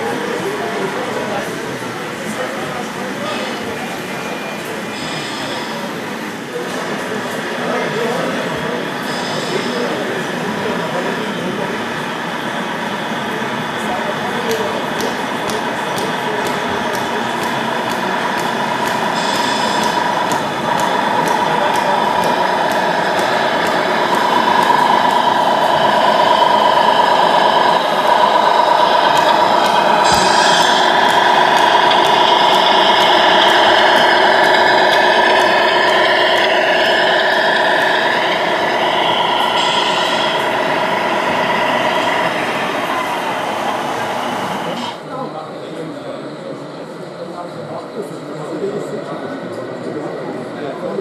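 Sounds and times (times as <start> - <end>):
model truck motor whine: 15.0 - 44.9.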